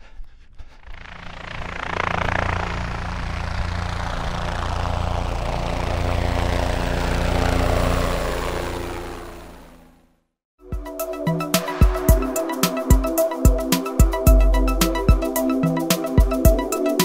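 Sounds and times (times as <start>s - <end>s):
helicopter rotor and engine: 0.7s - 10.2s.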